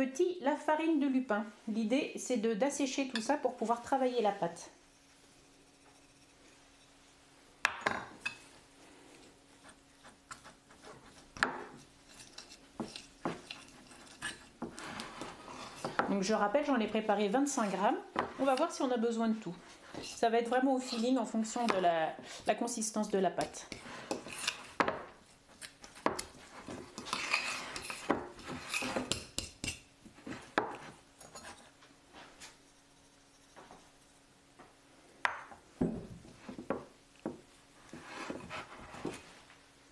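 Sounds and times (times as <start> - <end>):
cutlery scraping a ceramic plate: 10.0 - 16.1, 19.8 - 22.5, 23.4 - 31.7.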